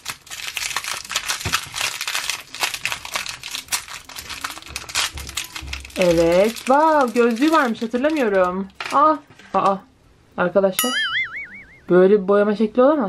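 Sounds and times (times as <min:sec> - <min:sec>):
plastic wrapper crinkling: 0:00.0 - 0:09.8.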